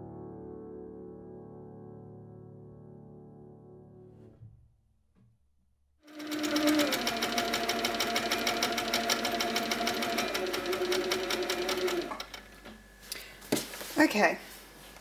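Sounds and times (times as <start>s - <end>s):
quilting machine stitching: 6.1s - 12.8s.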